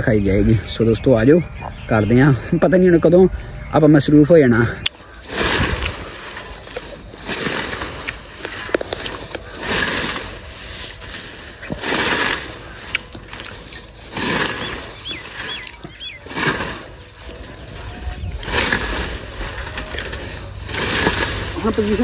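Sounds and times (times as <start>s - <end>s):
bird chirping: 0.0s - 20.6s
sickle swishing through stems: 4.9s - 22.0s.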